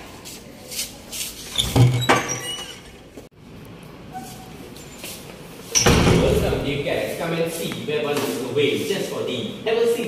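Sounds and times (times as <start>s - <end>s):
door squeaking: 1.5s - 3.1s, 5.7s - 6.4s.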